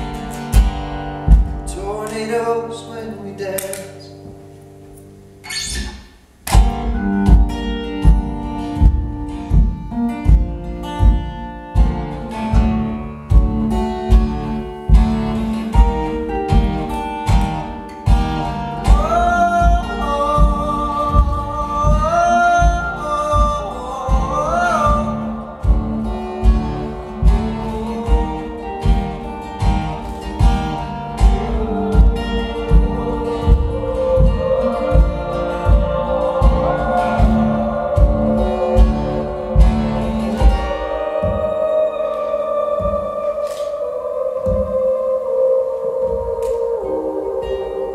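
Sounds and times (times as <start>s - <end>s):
wordless singing: 0.0s - 4.5s, 6.5s - 47.9s
acoustic guitar strumming: 0.0s - 47.9s
low thump on the beat: 1.3s - 1.7s, 6.5s - 11.4s.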